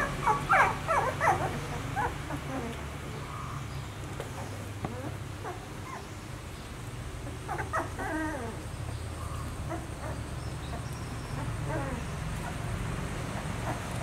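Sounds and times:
puppies whimpering: 0.0 - 3.2, 7.2 - 12.7.

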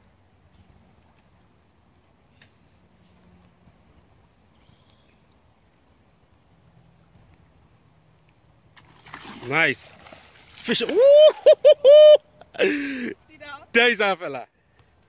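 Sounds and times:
faint clicks: 2.0 - 6.4, 8.1 - 8.4.

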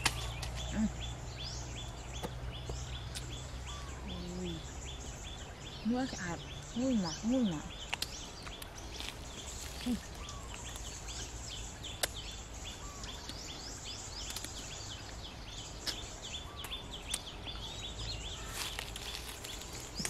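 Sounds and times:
branches clicking: 0.0 - 0.8, 7.8 - 12.4, 18.2 - 20.0
birds chirping: 0.0 - 20.0.

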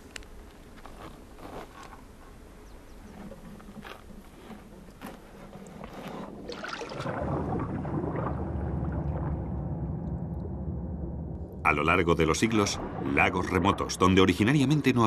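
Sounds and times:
water splashing into lake: 6.2 - 10.4
muffled underwater bubbling: 6.2 - 11.1.

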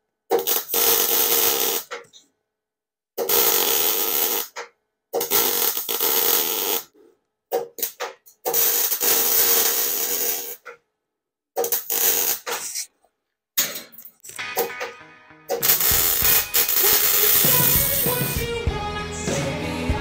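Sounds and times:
welder arc crackling: 11.6 - 12.9, 15.6 - 18.4.

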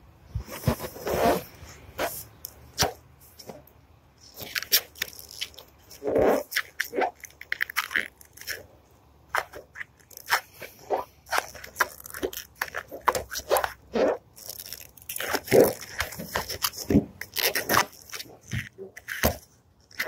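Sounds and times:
plastic decal crackling and tearing: 4.3 - 8.7, 9.3 - 20.0.

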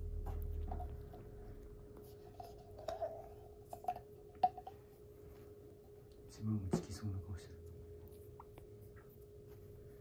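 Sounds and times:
low rumble: 0.0 - 1.9
faint steady hum: 0.0 - 10.0.

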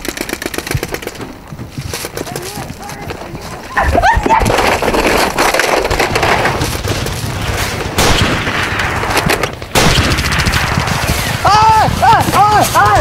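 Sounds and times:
machine-gun fire bursts: 7.4 - 12.8.

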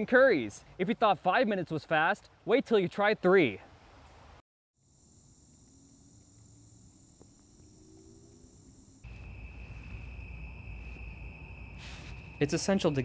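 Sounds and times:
crickets chorus: 4.8 - 13.0
high-pitched insect trilling: 4.8 - 13.0.

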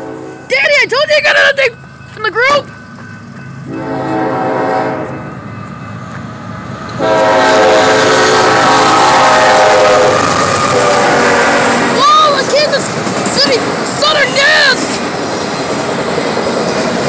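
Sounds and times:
train horn long blast: 0.0 - 0.4, 3.7 - 5.3, 7.0 - 12.0
train rumble: 0.0 - 17.0.

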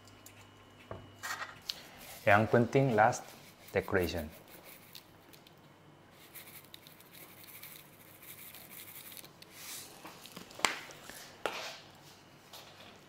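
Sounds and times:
hands handling shaker: 2.0 - 5.5, 6.2 - 10.7
seeds rattling in shaker: 2.9 - 5.1, 6.2 - 9.4.

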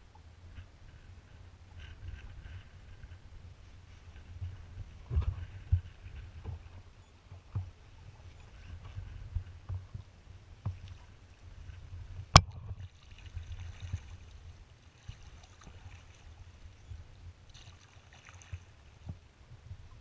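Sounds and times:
water splashing against hull: 4.2 - 20.0.

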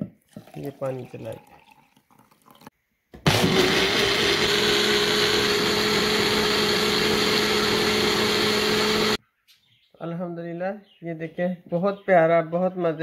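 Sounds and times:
blender motor humming: 3.2 - 9.2.

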